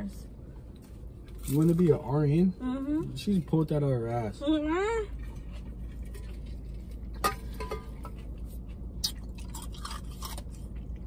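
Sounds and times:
steady low hum: 0.0s - 11.0s
wet mouth sounds: 8.8s - 11.0s.

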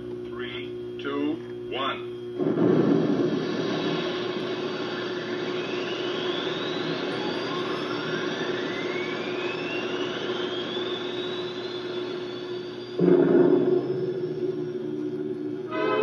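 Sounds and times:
steady low hum: 0.0s - 16.0s
rocket launch roar: 2.4s - 16.0s
whistling tones rising in pitch: 3.4s - 16.0s.

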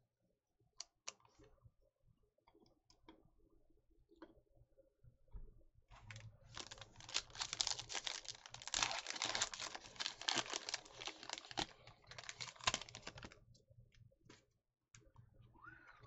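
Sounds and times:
foil wrapper crinkling and tearing: 6.5s - 13.4s.

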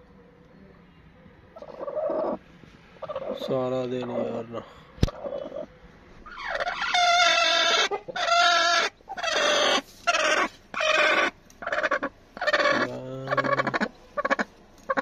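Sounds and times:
hen squawking: 5.1s - 15.0s.

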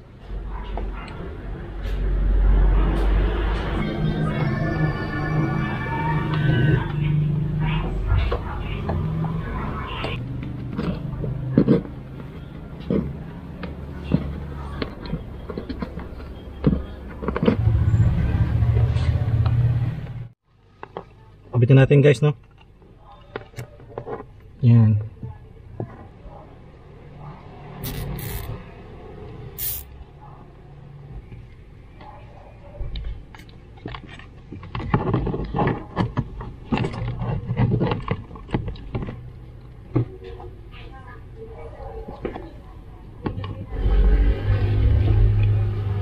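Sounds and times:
low vehicle hum: 1.0s - 20.6s, 35.4s - 46.0s.

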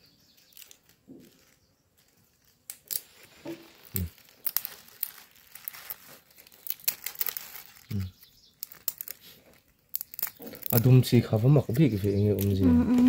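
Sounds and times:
dry bean pods crackling and snapping: 0.3s - 13.0s
plastic bag crinkling: 0.4s - 13.0s.

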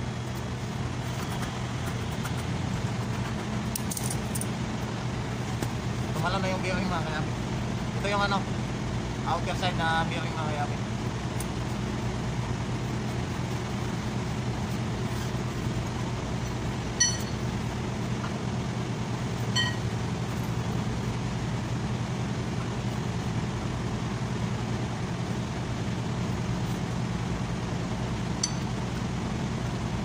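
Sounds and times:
steady low hum: 0.0s - 30.0s
sharp metal clinks: 17.0s - 17.5s, 19.5s - 19.9s, 28.4s - 28.8s.

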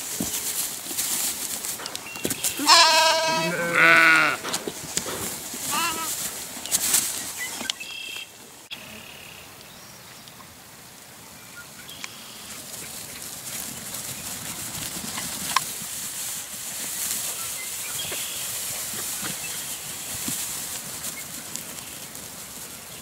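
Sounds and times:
rustling in grass and hay: 0.0s - 23.0s
lamb calls: 2.4s - 4.5s, 5.7s - 6.2s.

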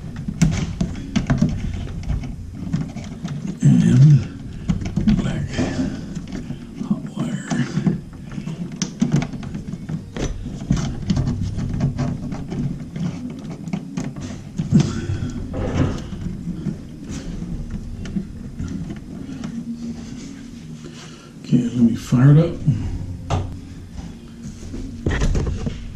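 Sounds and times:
clicks and knocks of wiring: 0.0s - 20.8s.

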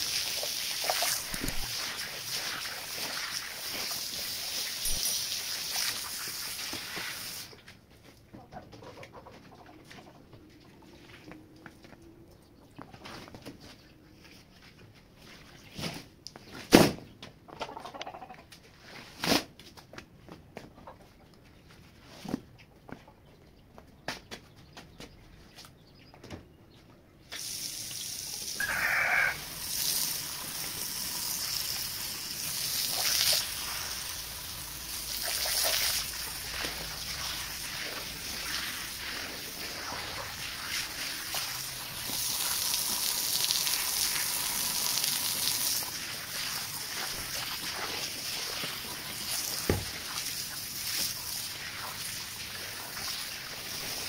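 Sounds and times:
water gushing onto wet rug: 0.0s - 7.6s, 27.4s - 54.0s.

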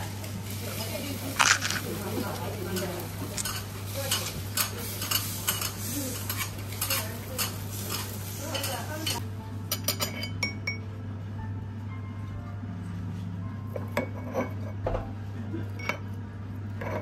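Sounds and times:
metal utensils scraping: 1.3s - 9.2s.

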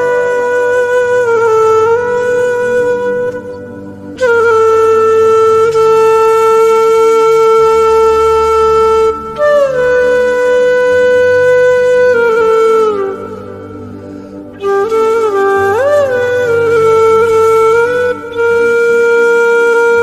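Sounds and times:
woodwind long notes: 0.0s - 20.0s.

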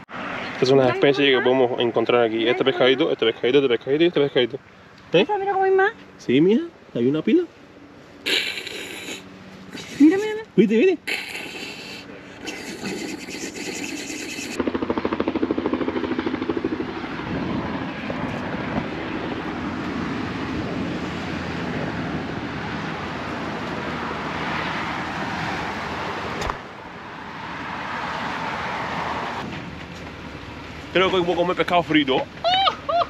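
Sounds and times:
engine running with fast pulse: 7.0s - 27.0s.

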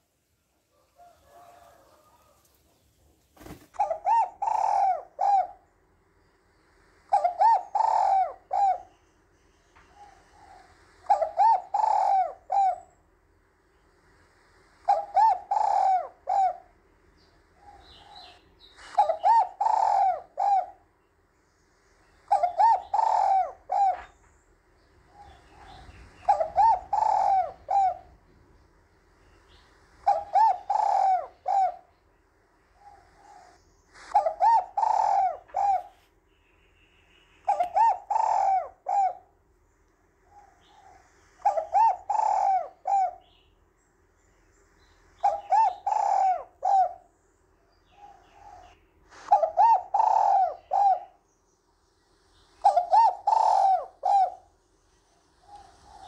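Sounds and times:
dove cooing: 0.7s - 2.5s, 3.4s - 5.7s, 7.1s - 9.0s, 9.8s - 13.0s, 14.8s - 16.8s, 17.5s - 20.9s, 22.3s - 24.2s, 25.1s - 28.5s, 29.4s - 32.0s, 32.7s - 36.1s, 37.4s - 39.4s, 40.2s - 43.4s, 45.2s - 47.1s, 47.8s - 51.2s, 52.5s - 56.0s.

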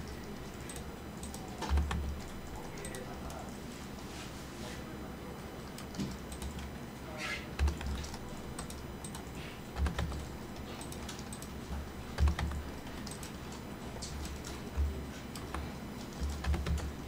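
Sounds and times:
keyboard and mouse clicks: 0.0s - 3.4s, 5.7s - 6.7s, 7.6s - 17.0s.

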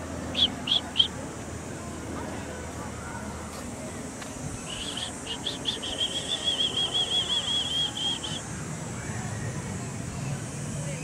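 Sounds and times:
small bird trilling: 0.3s - 1.2s, 4.6s - 8.4s.

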